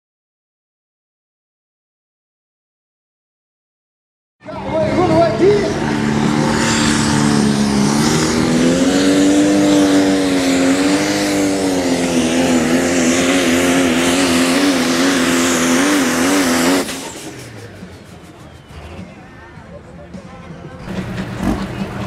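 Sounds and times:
diesel engine at full throttle: 0:04.4 - 0:22.0.

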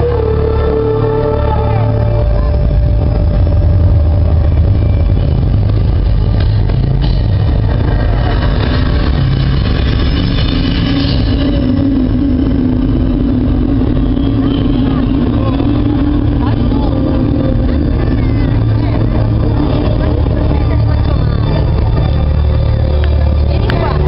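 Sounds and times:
large crowd rumble: 0:00.0 - 0:24.0
low held tone: 0:00.0 - 0:24.0.

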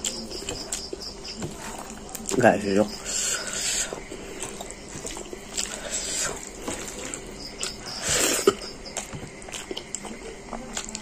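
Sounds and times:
wet chewing: 0:00.0 - 0:11.0.

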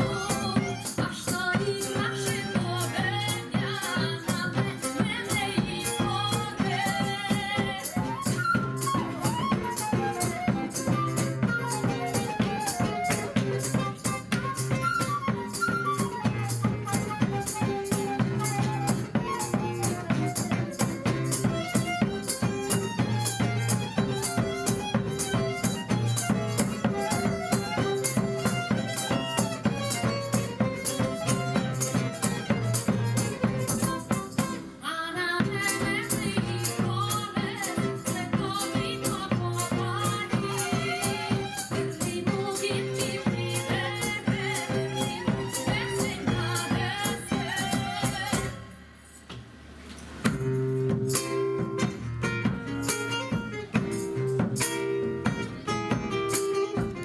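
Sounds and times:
drum and rattle rhythm: 0:00.0 - 0:34.8, 0:35.4 - 0:57.0
woman singing: 0:00.0 - 0:48.8
guitar: 0:00.0 - 0:57.0
violins melody: 0:20.6 - 0:34.6, 0:39.4 - 0:48.2.

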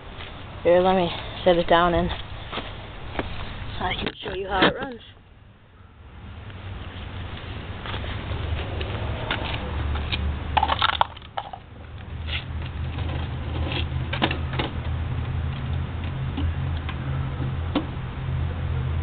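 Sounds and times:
steady low rumble: 0:00.0 - 0:19.0
footsteps on concrete: 0:00.1 - 0:04.7, 0:06.8 - 0:10.3.

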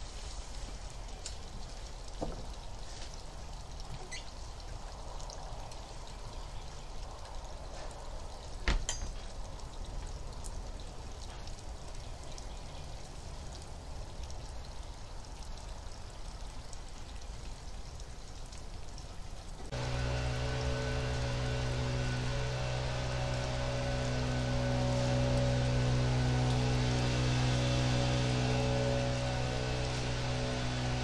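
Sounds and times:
distant lawn equipment engine hum: 0:19.7 - 0:31.0
steady whooshing hiss: 0:19.7 - 0:31.0.

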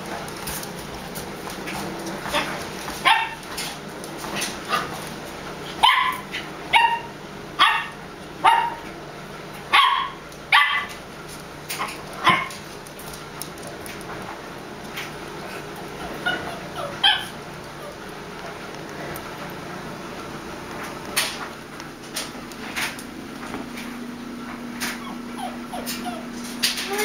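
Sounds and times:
dog barking: 0:02.3 - 0:03.4, 0:05.8 - 0:08.8, 0:09.7 - 0:10.9, 0:16.3 - 0:17.4.

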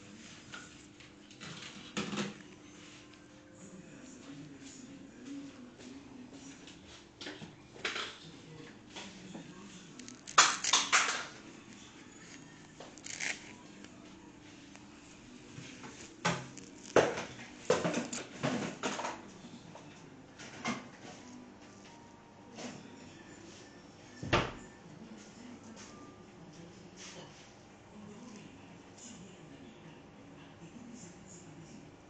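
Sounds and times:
cloth rustling: 0:11.6 - 0:18.3.

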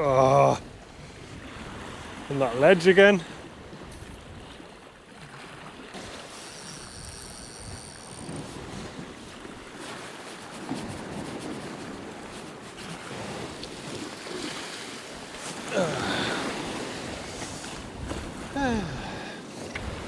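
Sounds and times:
sea waves washing over rocks: 0:00.5 - 0:20.0.

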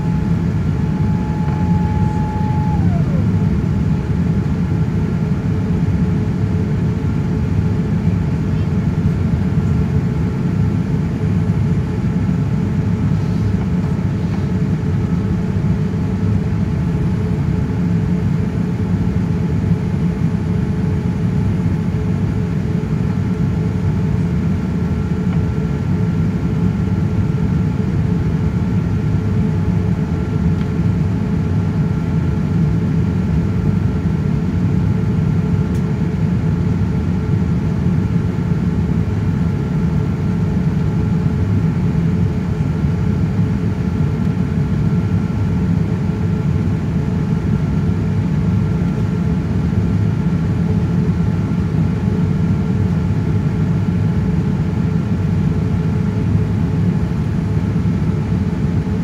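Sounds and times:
faint steady whining tones: 0:00.0 - 0:07.6
jet engine cabin roar: 0:00.0 - 0:59.0.

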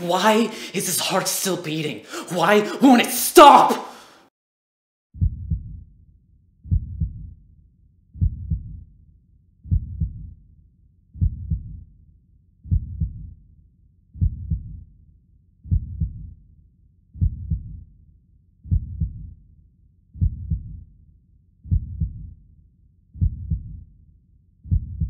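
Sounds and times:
heartbeat thumps: 0:05.2 - 0:05.8, 0:06.7 - 0:07.3, 0:08.2 - 0:08.8, 0:09.7 - 0:10.3, 0:11.2 - 0:11.8, 0:12.7 - 0:13.2, 0:14.2 - 0:14.8, 0:15.7 - 0:16.2, 0:17.2 - 0:17.8, 0:18.7 - 0:19.2, 0:20.2 - 0:20.8, 0:21.7 - 0:22.3, 0:23.2 - 0:23.8, 0:24.7 - 0:25.0.

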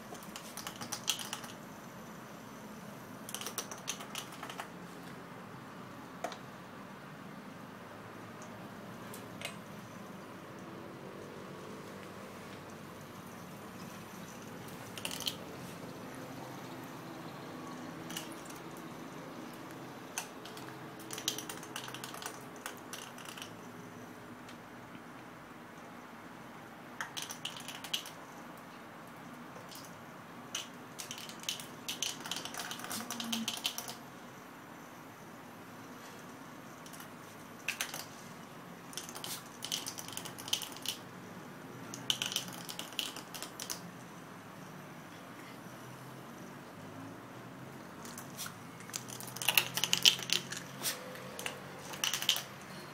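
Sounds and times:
puppy claws clicking on tiles: 0:00.1 - 0:01.6, 0:03.3 - 0:04.7, 0:14.6 - 0:15.4, 0:18.0 - 0:18.9, 0:19.5 - 0:23.7, 0:27.0 - 0:28.2, 0:30.6 - 0:34.0, 0:38.9 - 0:41.1, 0:41.9 - 0:43.9, 0:48.0 - 0:52.7.

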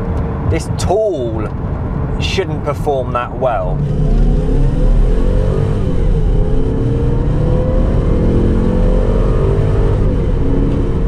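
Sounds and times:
car engine accelerating hard: 0:03.6 - 0:11.0.

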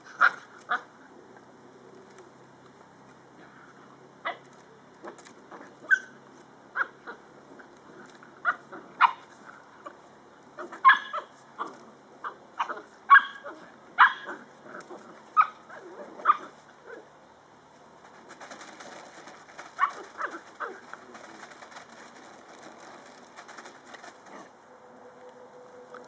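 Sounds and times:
puppies yipping and barking: 0:10.6 - 0:14.5, 0:19.6 - 0:21.7.

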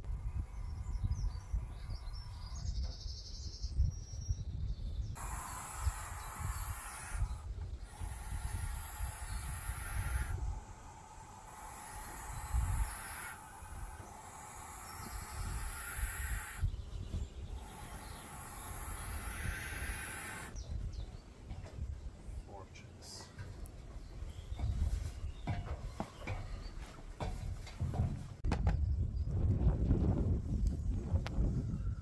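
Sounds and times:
owl chicks hissing: 0:05.2 - 0:20.6.

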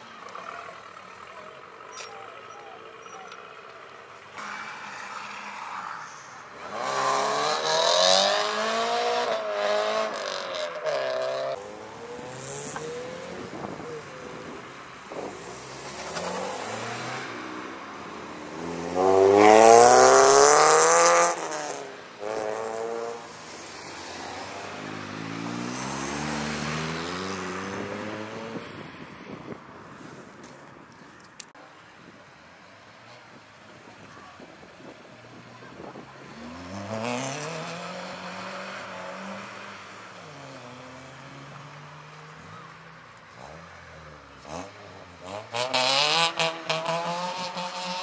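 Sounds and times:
sports cars accelerating past: 0:04.4 - 0:29.4, 0:35.3 - 0:48.0.

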